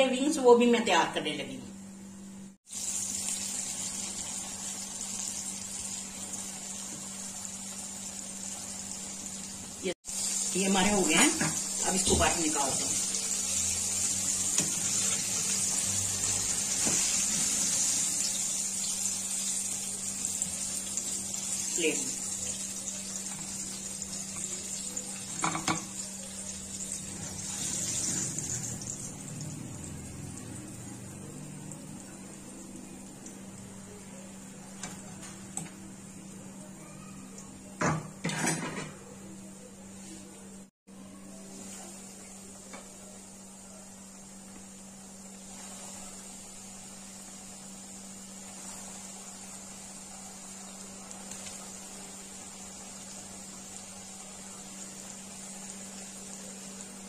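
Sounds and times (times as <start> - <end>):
chicken deep-frying in oil: 2.6 - 57.0
plate and skimmer clattering: 37.8 - 39.0.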